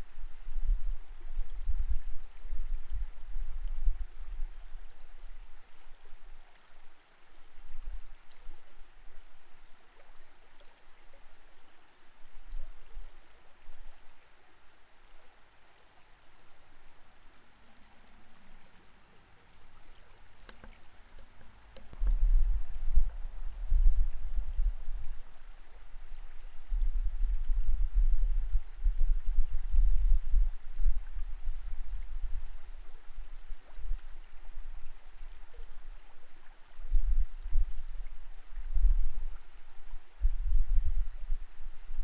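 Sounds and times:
faint steady hiss: 0.0s - 42.0s
underwater current rumbling: 19.7s - 42.0s.

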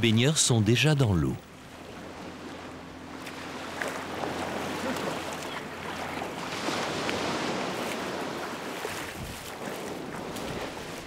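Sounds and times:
sea surf washing over rocks: 4.2s - 11.0s
wind noise on microphone: 9.0s - 9.7s.

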